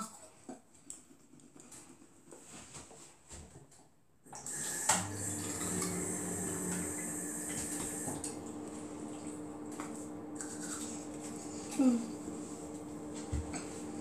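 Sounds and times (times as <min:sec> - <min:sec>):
tap running into sink: 0:04.4 - 0:08.4.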